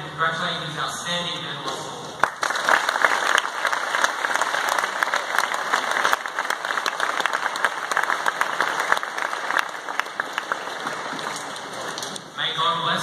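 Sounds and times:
audience applauding: 0:02.2 - 0:12.2.

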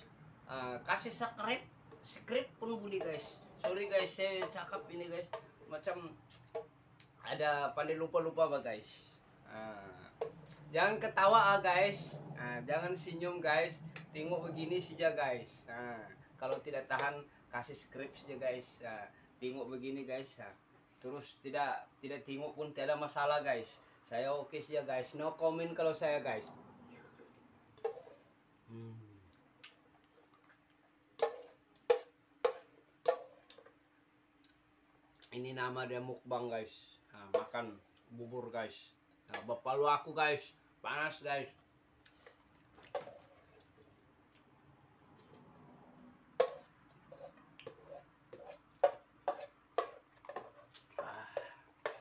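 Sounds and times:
spoon scraping a metal pot: 0:27.0 - 0:28.3, 0:31.2 - 0:33.8, 0:42.2 - 0:43.9, 0:46.4 - 0:51.0, 0:51.8 - 0:52.0
low throat hum: 0:28.7 - 0:29.3.

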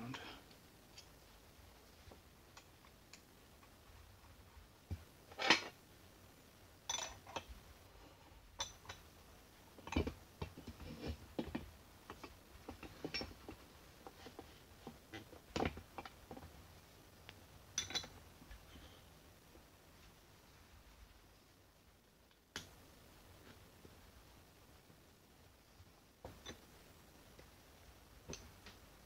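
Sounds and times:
metal nuts clinking and knocking: 0:06.9 - 0:07.5, 0:17.8 - 0:18.2.

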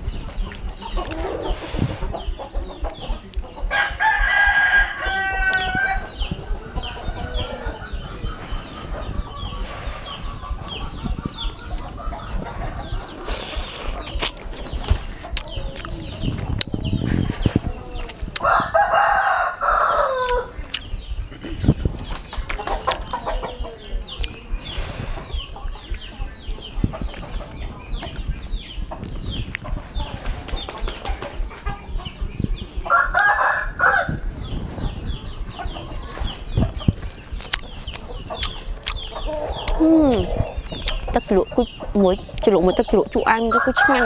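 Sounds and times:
chicken calls and chirps: 0:00.0 - 0:44.0
rooster crowing: 0:03.7 - 0:06.2, 0:18.4 - 0:20.6, 0:32.9 - 0:34.3, 0:43.5 - 0:44.0.

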